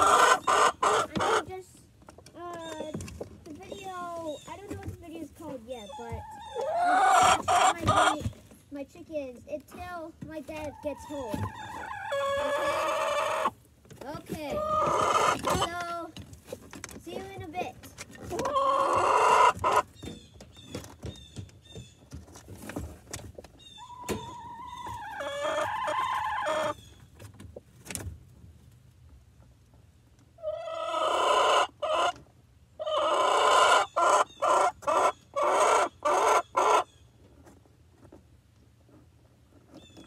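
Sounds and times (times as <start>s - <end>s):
high chick peeps: 0.0s - 1.6s, 2.5s - 8.5s, 9.8s - 13.6s, 14.4s - 16.0s, 17.1s - 22.3s, 23.2s - 27.3s, 30.4s - 32.2s, 32.8s - 37.6s
chickens squawking: 0.0s - 1.8s, 2.6s - 8.5s, 10.4s - 16.0s, 17.1s - 22.1s, 23.2s - 27.2s, 30.4s - 37.2s
chickens calling: 0.0s - 8.6s, 9.8s - 27.9s, 29.4s - 37.6s.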